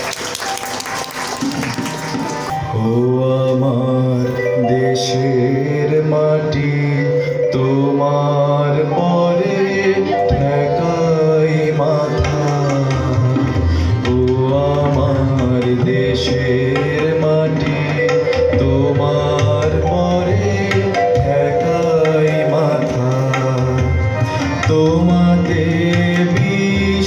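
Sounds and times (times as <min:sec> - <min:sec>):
tabla drumming: 0:00.0 - 0:03.9, 0:10.2 - 0:27.0
reed-like melody: 0:00.1 - 0:27.0.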